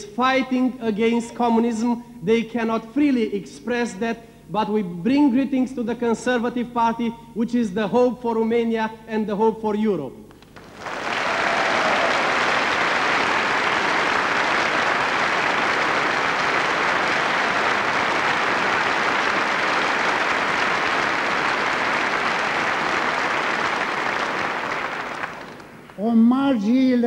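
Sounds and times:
audience applauding: 0:10.4 - 0:26.0.

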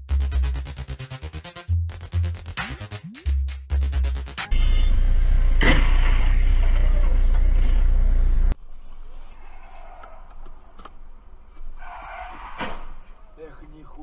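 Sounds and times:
car engine and road rumble: 0:04.5 - 0:14.0.

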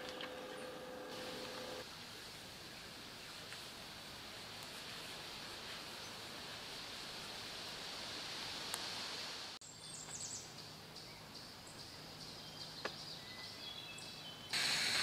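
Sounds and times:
high-pitched hiss: 0:14.5 - 0:15.0.

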